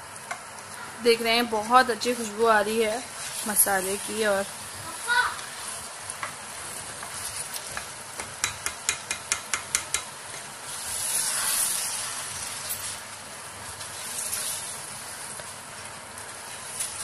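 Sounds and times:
chicken masala sizzling: 0:00.0 - 0:17.0
spatula knocking against pot: 0:08.2 - 0:10.1.

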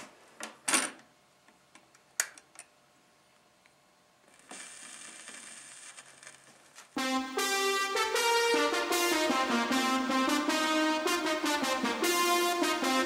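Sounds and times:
vinyl surface hiss: 0:04.2 - 0:08.7.

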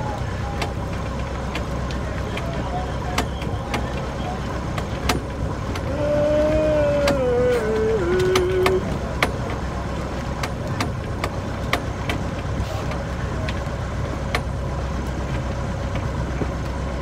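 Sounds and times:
low engine hum: 0:00.0 - 0:17.0
sharp clicks and knocks: 0:10.4 - 0:14.6.

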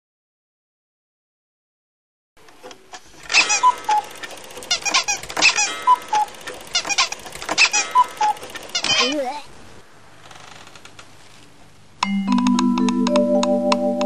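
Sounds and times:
cartoon clatter of clicks: 0:02.9 - 0:09.2
short squeaky tones: 0:03.2 - 0:09.2.

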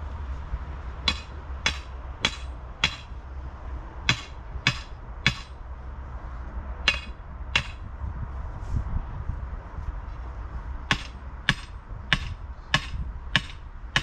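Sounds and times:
sledgehammer striking metal stake: 0:01.1 - 0:03.2, 0:04.1 - 0:05.6, 0:06.9 - 0:07.9, 0:10.9 - 0:14.0.

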